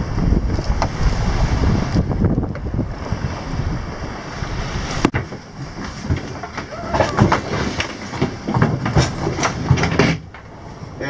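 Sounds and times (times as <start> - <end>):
choppy waves: 0.0 - 11.0
wind on microphone: 0.0 - 11.0
knocking and clatter in cabin: 5.1 - 10.5.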